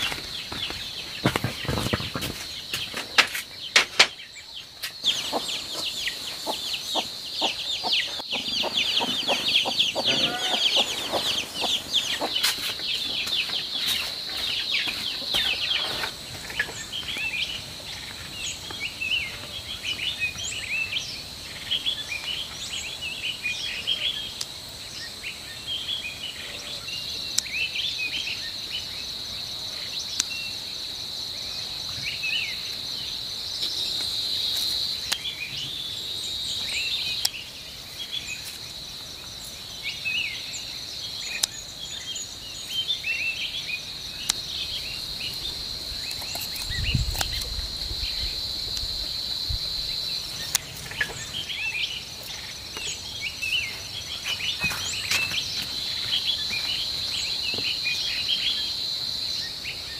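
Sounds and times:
insects chorus: 0.0 - 59.9
small birds chirping: 0.0 - 59.9.

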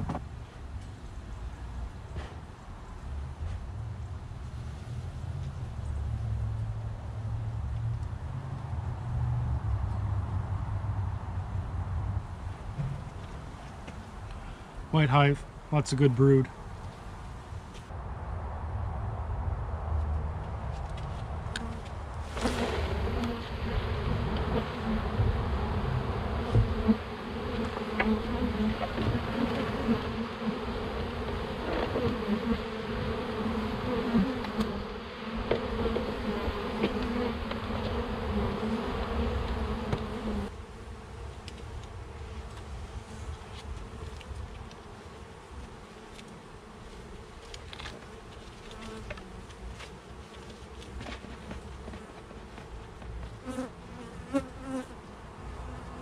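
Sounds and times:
honeybees buzzing: 21.5 - 56.0.

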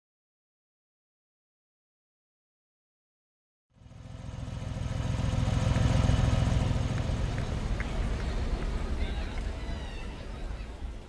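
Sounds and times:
car engine running: 3.8 - 10.7.

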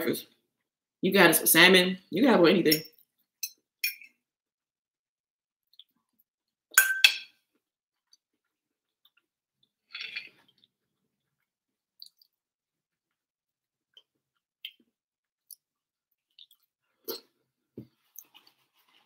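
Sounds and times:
eating sounds: 10.0 - 12.4, 13.9 - 17.4.

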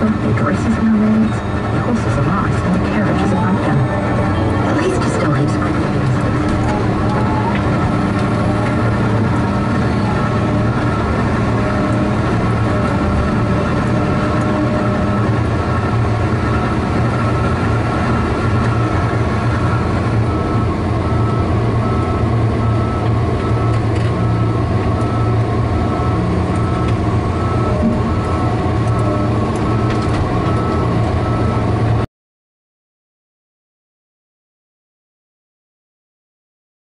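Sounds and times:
steady tones: 0.0 - 15.9
diesel engine running: 0.0 - 32.0.

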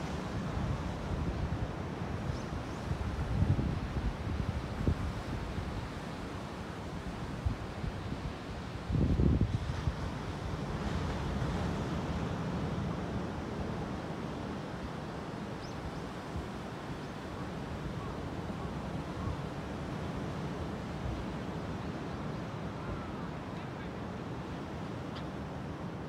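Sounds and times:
ocean surf washing up beach: 0.0 - 15.6
wind buffeting microphone: 8.9 - 10.2.

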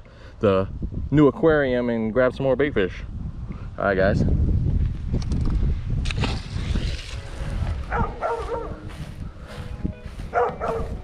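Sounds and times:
wind rumble on microphone: 0.5 - 11.0
dogs barking: 7.8 - 8.9, 10.2 - 11.0.

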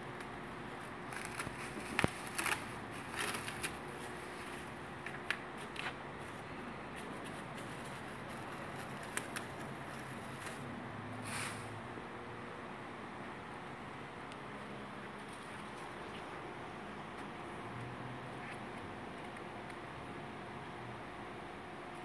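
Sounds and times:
faint steady hum: 0.0 - 22.0
plastic sheet crinkling: 0.2 - 10.7
masking tape peeling: 1.1 - 6.0, 7.0 - 10.7.

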